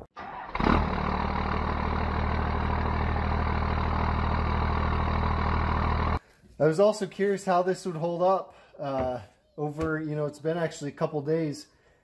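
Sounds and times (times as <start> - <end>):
diesel truck engine idling: 0.3 - 6.2.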